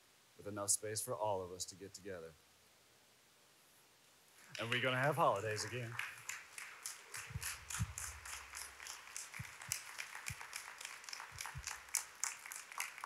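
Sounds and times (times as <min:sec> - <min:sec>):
audience applauding: 0:04.4 - 0:13.0
microphone handling thumps: 0:07.3 - 0:08.2.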